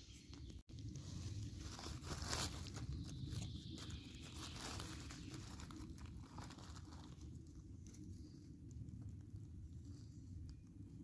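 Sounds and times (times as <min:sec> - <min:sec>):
footsteps crunching through leaves: 0:01.0 - 0:07.3.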